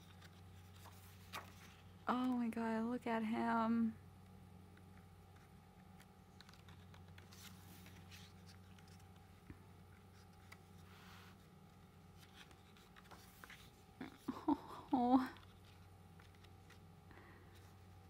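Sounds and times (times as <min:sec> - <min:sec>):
paper pages rustling: 0:00.0 - 0:02.4, 0:04.9 - 0:13.9, 0:15.4 - 0:16.9
low steady hum: 0:00.0 - 0:18.0.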